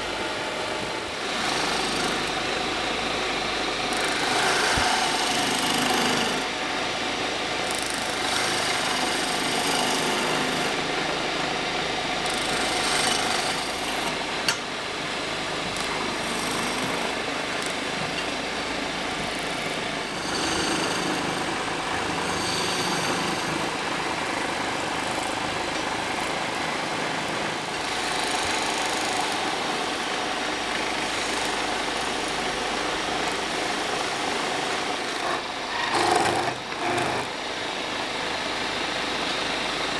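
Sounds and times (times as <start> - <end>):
wood lathe running: 3.9 - 6.5, 7.7 - 11.3, 12.2 - 14.6, 15.2 - 37.5
chisel scraping spinning wood: 35.1 - 37.4.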